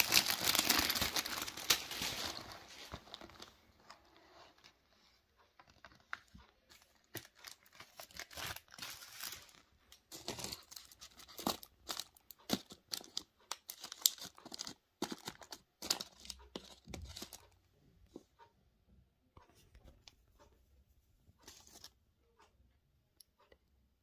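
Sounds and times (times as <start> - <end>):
paper and foil packaging crinkling: 0.0 - 4.7, 5.6 - 17.5.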